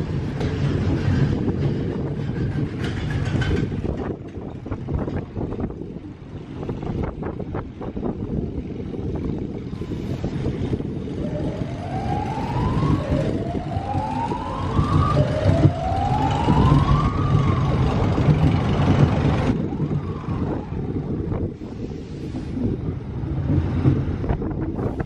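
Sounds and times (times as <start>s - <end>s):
wind buffeting microphone: 0.0s - 25.0s
siren-like rising whoop: 10.8s - 18.4s, 19.5s - 21.1s.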